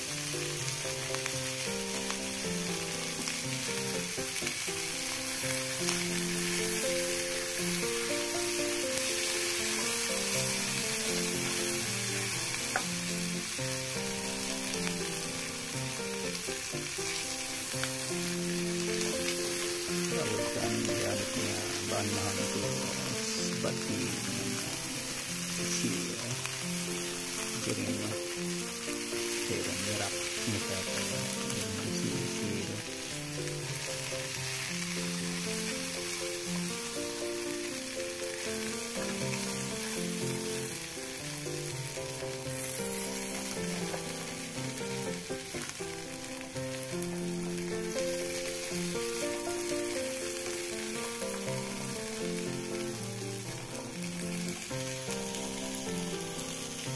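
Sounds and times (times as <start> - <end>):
background music: 0.0 - 56.9
beans sizzling in a wok: 0.0 - 56.9
spatula turning food: 4.3 - 13.6.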